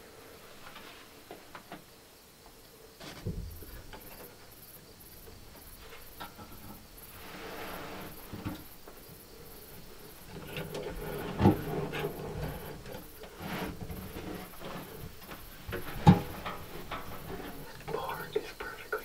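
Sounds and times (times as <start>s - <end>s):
knocks and creaks: 0.4s - 19.0s.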